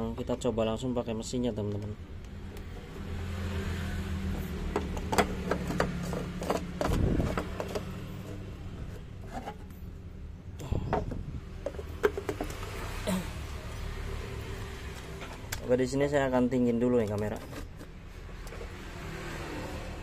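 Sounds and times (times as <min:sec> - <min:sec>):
blender parts clicking and knocking: 0:04.5 - 0:08.3, 0:11.6 - 0:12.8.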